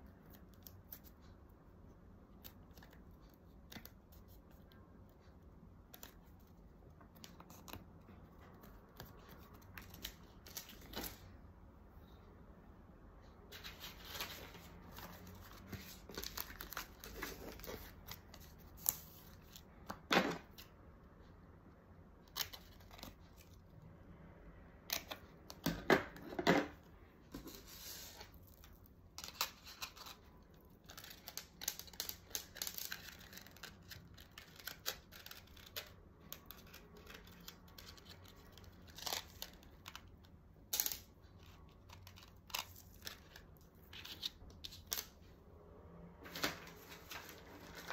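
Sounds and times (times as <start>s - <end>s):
paper and plastic bags rustling: 46.2s - 47.9s.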